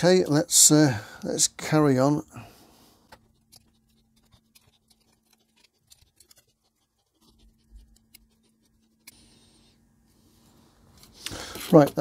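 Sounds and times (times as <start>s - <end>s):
faint clicks and scratches: 3.0s - 9.8s, 10.4s - 12.0s.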